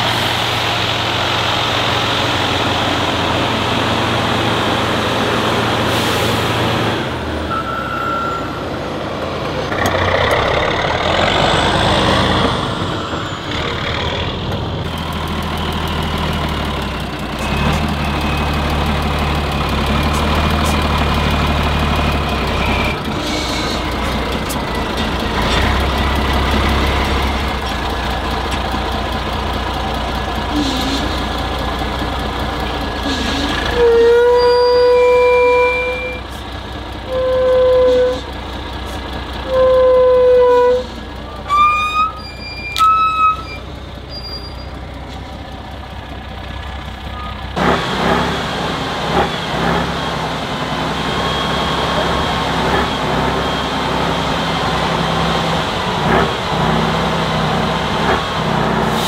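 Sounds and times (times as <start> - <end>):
truck engine revving: 0.0 - 59.0
air horn blasts: 37.1 - 38.2, 39.4 - 42.2.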